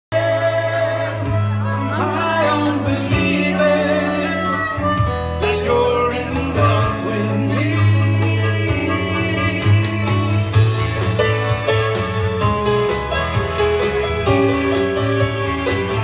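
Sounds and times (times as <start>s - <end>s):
man singing: 0.1s - 10.7s
electronic keyboard: 0.2s - 16.0s.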